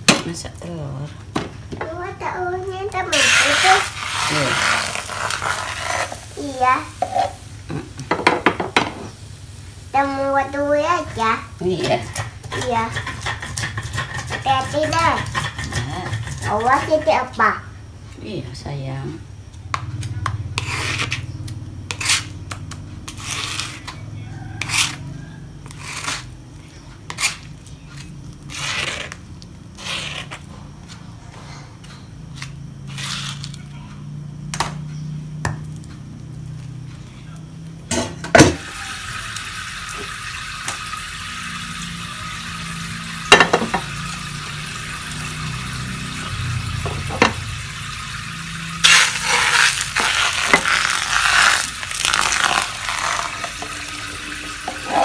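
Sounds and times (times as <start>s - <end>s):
spatula scraping stone mortar: 11.8s - 17.2s, 20.5s - 21.3s, 21.9s - 22.5s, 23.1s - 24.0s, 24.6s - 25.0s, 25.6s - 26.4s, 27.1s - 30.5s, 54.7s - 55.0s.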